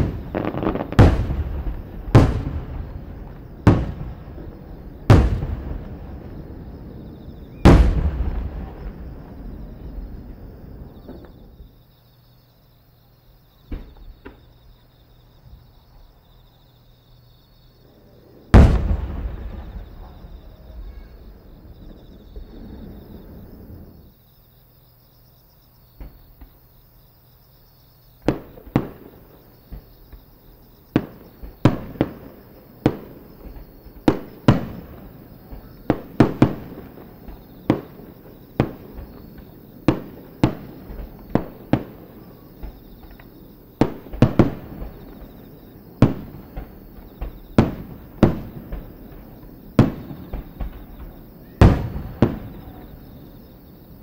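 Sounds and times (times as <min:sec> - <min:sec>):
sharp firework bangs: 0:00.0 - 0:11.4, 0:18.5 - 0:21.2, 0:28.2 - 0:53.9
loud firework boom with echo: 0:00.0 - 0:11.6, 0:18.5 - 0:24.0, 0:46.0 - 0:53.5.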